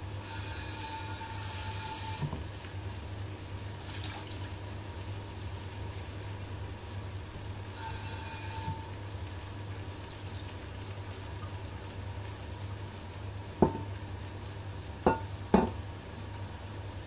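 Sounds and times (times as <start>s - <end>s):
pressure cooker whistling steam: 0.0s - 2.4s, 7.7s - 9.0s.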